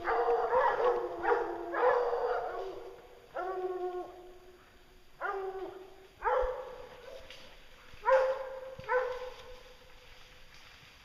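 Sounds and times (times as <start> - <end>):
hounds baying: 0.0 - 4.3, 5.2 - 9.7.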